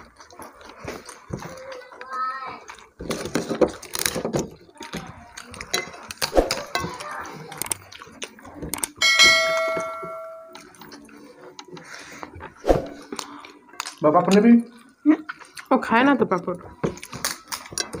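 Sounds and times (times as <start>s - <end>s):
eating noises on plates: 0.0s - 18.0s
notification bell ding: 9.0s - 10.7s.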